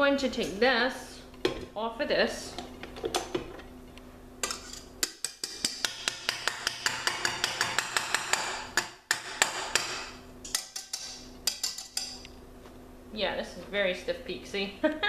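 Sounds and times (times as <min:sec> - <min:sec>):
whisk tapping metal bowl: 0:04.4 - 0:12.3.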